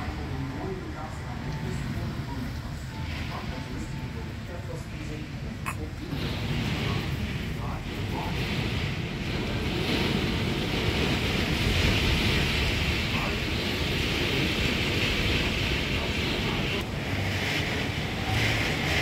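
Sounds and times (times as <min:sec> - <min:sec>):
torrential rain pouring: 0:00.0 - 0:19.0
wind buffeting microphone: 0:05.4 - 0:19.0.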